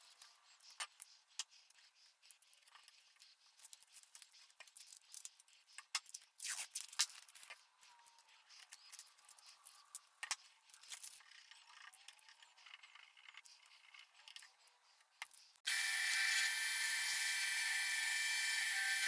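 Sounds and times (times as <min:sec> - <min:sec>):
masking tape crinkling and clicking: 0:00.0 - 0:15.7
drill press whirring: 0:15.7 - 0:19.0.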